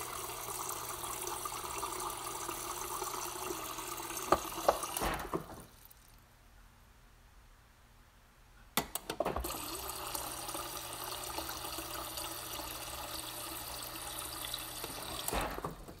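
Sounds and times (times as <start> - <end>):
water pouring into a glass: 0.0 - 5.0, 9.4 - 15.3.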